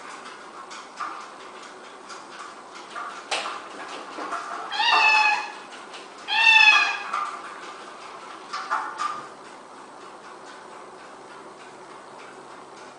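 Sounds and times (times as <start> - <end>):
cat meowing: 4.7 - 5.7, 6.3 - 7.1.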